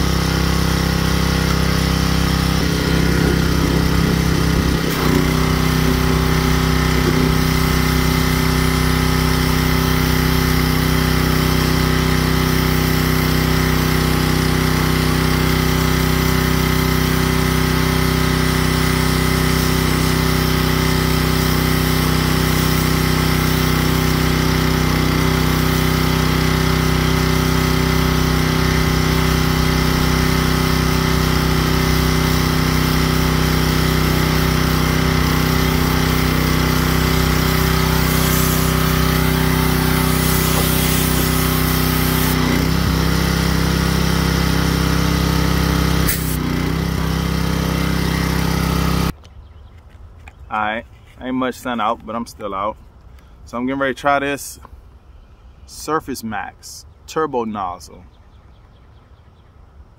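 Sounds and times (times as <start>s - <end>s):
pressure washer engine running: 0.0s - 49.2s.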